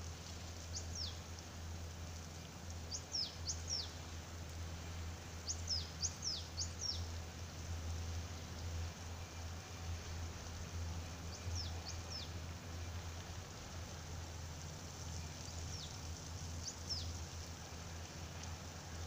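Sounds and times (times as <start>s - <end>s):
small bird calling: 2.9s - 4.0s, 5.4s - 7.1s.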